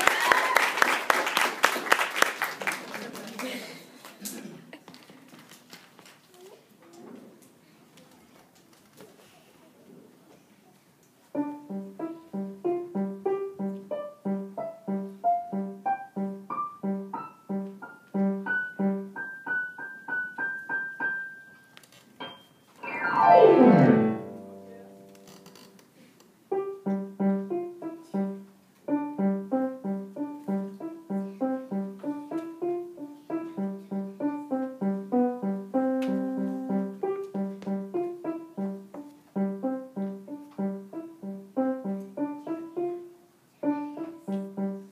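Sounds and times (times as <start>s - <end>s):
digital piano playing: 11.4s - 21.6s, 22.2s - 24.9s, 26.7s - 43.1s
piano glissando: 11.4s - 25.2s, 26.5s - 43.1s.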